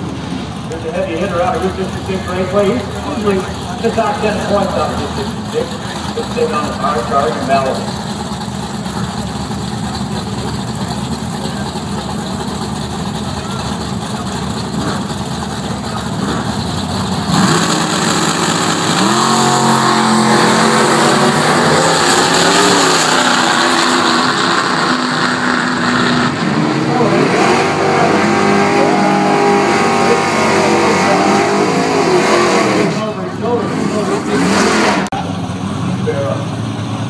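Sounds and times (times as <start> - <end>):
race car engines accelerating: 0.0 - 37.0.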